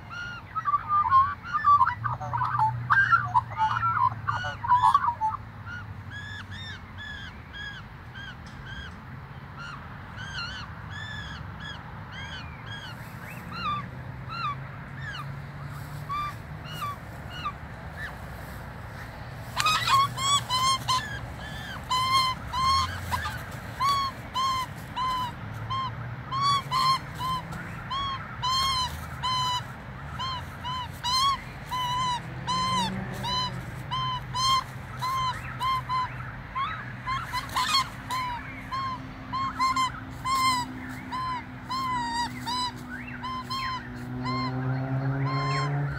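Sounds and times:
magpies squawking: 0:00.0 - 0:09.0, 0:09.6 - 0:45.9
scuffling noise: 0:17.9 - 0:25.7.

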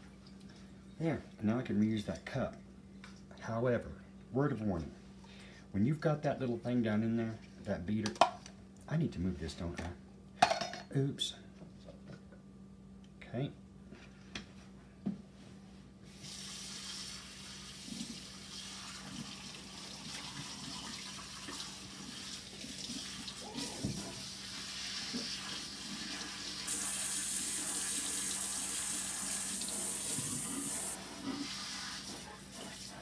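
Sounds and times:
water running from tap: 0:16.2 - 0:32.9.

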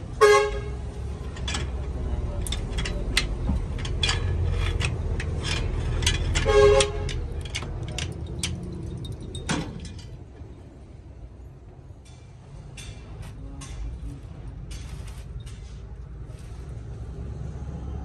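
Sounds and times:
vehicle horn honking: 0:00.2 - 0:00.8, 0:06.4 - 0:07.2
metal spanner clinking: 0:01.2 - 0:10.5.

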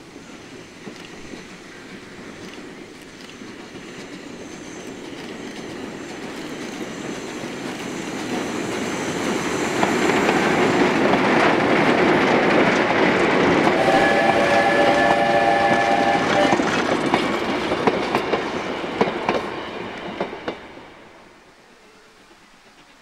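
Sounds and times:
train wheels rumbling on rails: 0:00.0 - 0:21.4.

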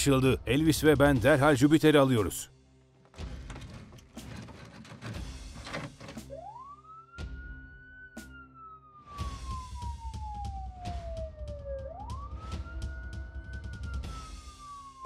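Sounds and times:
toy fire engine siren wailing: 0:06.2 - 0:15.0.

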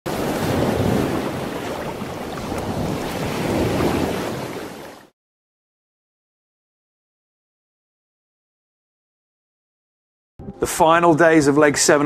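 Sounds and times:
sea surf: 0:00.1 - 0:05.1
wind: 0:00.1 - 0:05.1.

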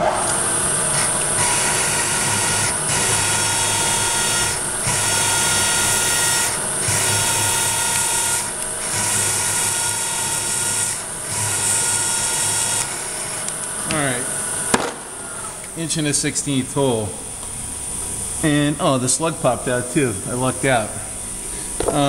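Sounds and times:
high-pitched metal cutting whine: 0:00.0 - 0:22.0
machine hum: 0:00.0 - 0:22.0.

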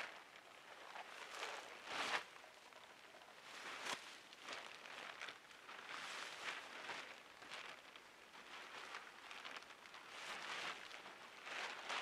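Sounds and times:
plastic tarp rustling: 0:03.4 - 0:12.0.

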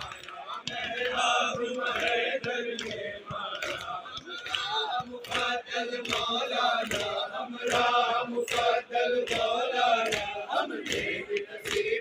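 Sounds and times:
men chanting in unison: 0:00.0 - 0:12.0
rhythmic chest-beating slaps: 0:00.0 - 0:12.0.

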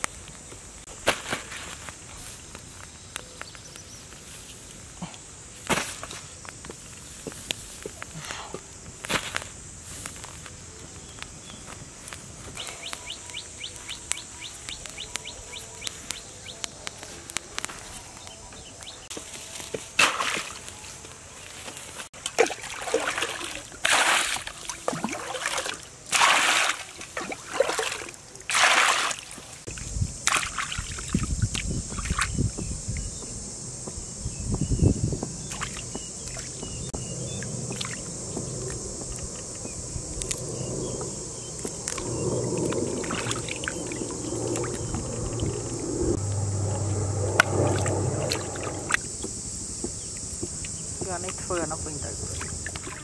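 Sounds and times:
water sloshing in basin: 0:22.2 - 0:29.5
steady high-pitched hum: 0:34.3 - 0:51.1.

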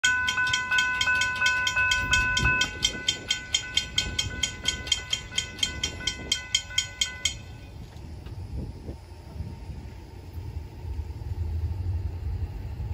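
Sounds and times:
railroad crossing bells ringing: 0:00.0 - 0:08.0.

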